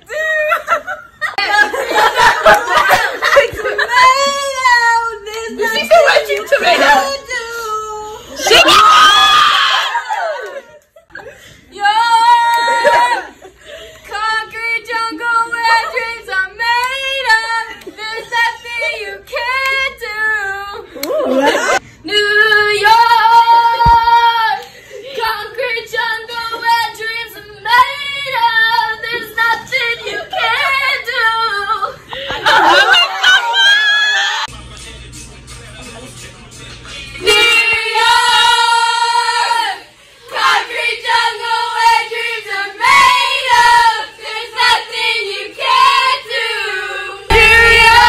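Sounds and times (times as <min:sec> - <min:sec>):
woman singing unaccompanied: 0:03.2 - 0:08.4, 0:14.1 - 0:32.0, 0:37.2 - 0:39.8
loud held sung note: 0:47.3 - 0:48.0.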